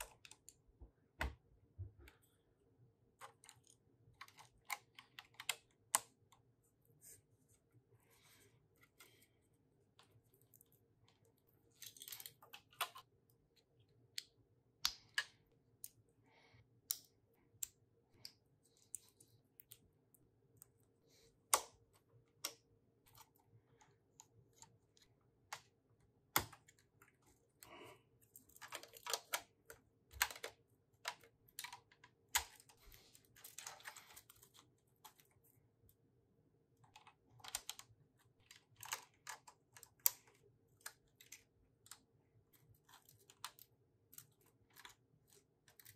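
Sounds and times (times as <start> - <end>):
small plastic parts rattling: 3.2 - 6.2, 10.0 - 13.2, 28.2 - 35.6, 36.8 - 45.9.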